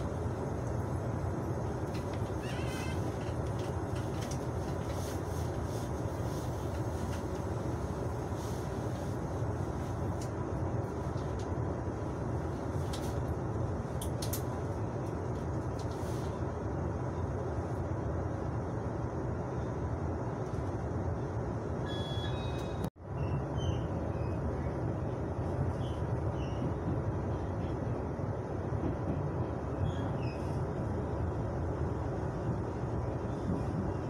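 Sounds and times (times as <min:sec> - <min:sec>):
train coach rumble: 0:00.0 - 0:34.0.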